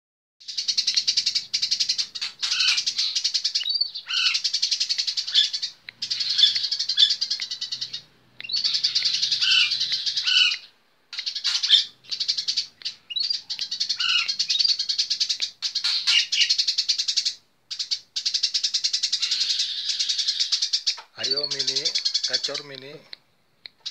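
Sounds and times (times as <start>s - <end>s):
sparrow chattering call: 0.4s - 23.0s.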